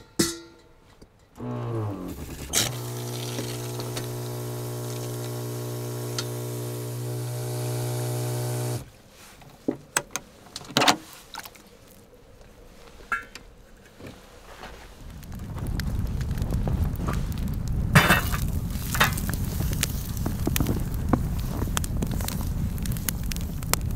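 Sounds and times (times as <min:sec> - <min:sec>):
sharp clicks and knocks: 0:01.4 - 0:08.8
electric water pump humming: 0:01.4 - 0:08.9
water running into a saucepan: 0:02.5 - 0:08.8.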